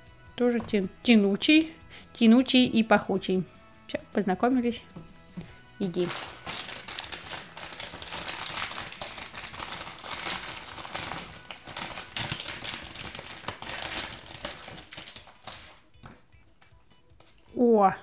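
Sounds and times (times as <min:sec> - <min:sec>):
foil packet crinkling: 0:05.9 - 0:15.8.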